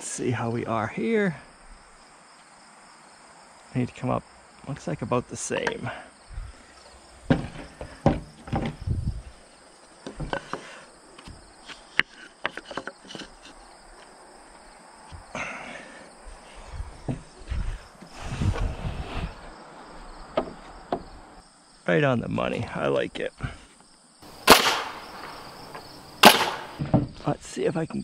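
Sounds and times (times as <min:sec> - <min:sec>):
crickets chirping: 0:00.0 - 0:28.0
wooden knocks and clunks: 0:07.2 - 0:09.3, 0:10.0 - 0:14.1, 0:15.1 - 0:15.4, 0:16.6 - 0:18.8, 0:20.3 - 0:21.2, 0:26.7 - 0:27.3
tools set down on planks: 0:07.3 - 0:08.8, 0:10.0 - 0:14.1, 0:26.8 - 0:27.2.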